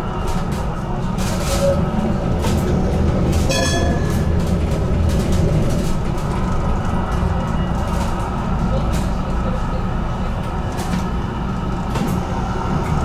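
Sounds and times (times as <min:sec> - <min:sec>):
tram rumbling on track: 0:00.0 - 0:13.0.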